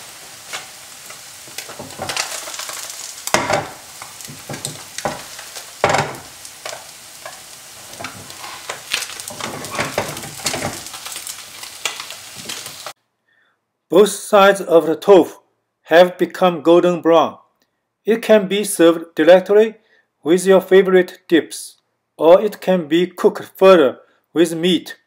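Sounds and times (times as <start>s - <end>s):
tofu sizzling and popping in oil: 0.0s - 13.0s.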